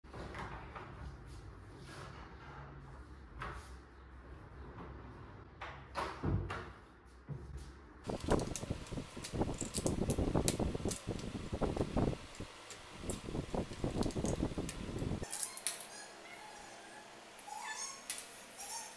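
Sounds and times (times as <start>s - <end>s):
laminate strips rustling and tapping: 8.1s - 15.8s
low steady hum: 8.1s - 17.5s.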